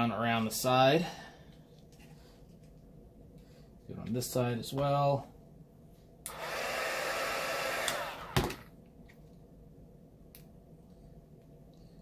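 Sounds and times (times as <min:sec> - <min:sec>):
heat gun blowing air: 0:06.3 - 0:08.6.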